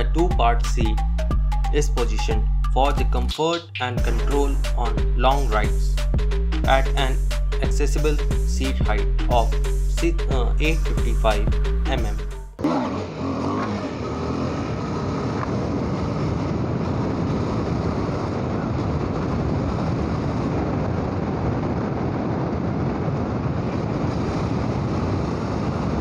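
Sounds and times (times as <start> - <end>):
road noise: 5.9 - 26.0
motorcycle engine: 11.5 - 18.3
wind rush over microphone: 13.9 - 26.0.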